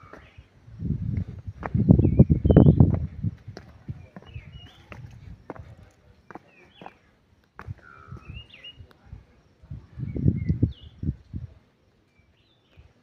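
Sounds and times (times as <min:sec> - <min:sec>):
low thumps and rumbles: 0:00.8 - 0:05.5
birds chirping: 0:01.2 - 0:09.0, 0:10.0 - 0:11.3.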